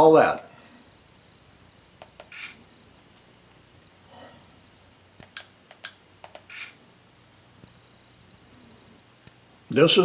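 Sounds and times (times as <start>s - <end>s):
buttons clicking: 2.0s - 2.6s, 5.2s - 6.8s.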